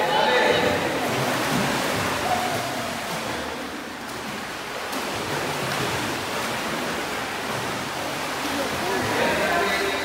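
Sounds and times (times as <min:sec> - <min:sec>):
children splashing in pool water: 0:00.7 - 0:10.0.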